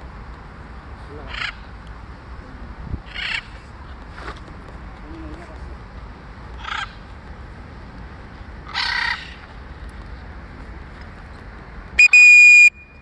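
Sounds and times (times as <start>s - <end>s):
high-pitched whistle tone: 12.0s - 13.0s.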